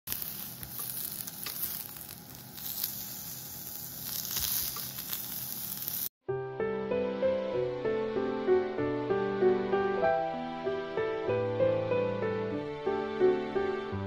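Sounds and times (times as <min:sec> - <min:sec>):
meat and vegetables sizzling on grill pan: 0:00.1 - 0:06.1.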